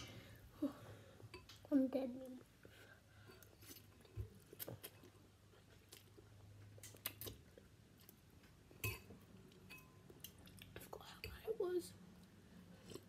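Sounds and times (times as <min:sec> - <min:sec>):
mouth clicks and smacks: 0:06.8 - 0:07.6.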